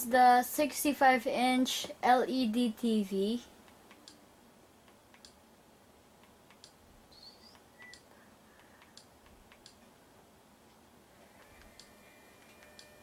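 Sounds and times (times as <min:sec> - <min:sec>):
faint clicks: 0:07.5 - 0:09.9.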